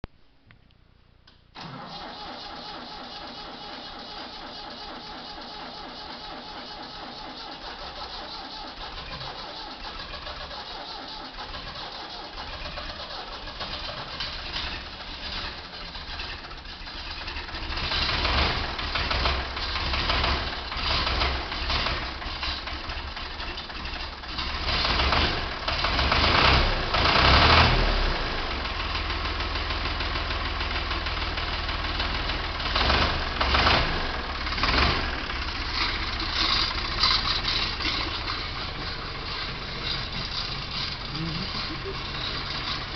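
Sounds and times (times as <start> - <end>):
tractor engine starting and idling: 1.2 - 42.9.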